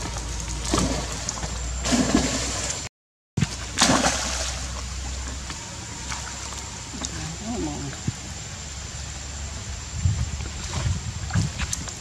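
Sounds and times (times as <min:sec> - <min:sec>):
monkeys splashing in water: 0:00.0 - 0:02.8, 0:03.4 - 0:04.8
moving water: 0:00.0 - 0:12.0.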